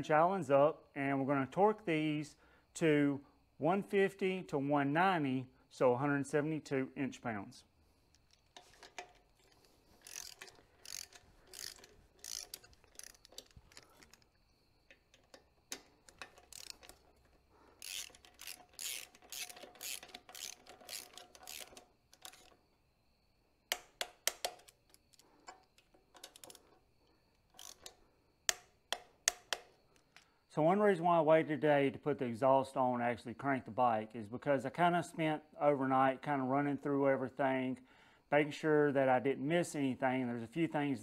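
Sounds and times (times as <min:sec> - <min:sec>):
socket ratchet clicking: 0:08.1 - 0:22.7, 0:23.7 - 0:26.8, 0:27.4 - 0:30.2.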